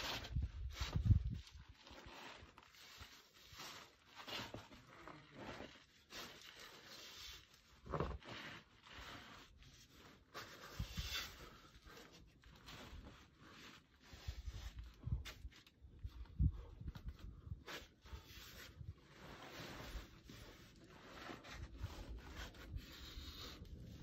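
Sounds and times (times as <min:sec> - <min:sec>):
clothing scraping on rock: 0:00.0 - 0:11.7.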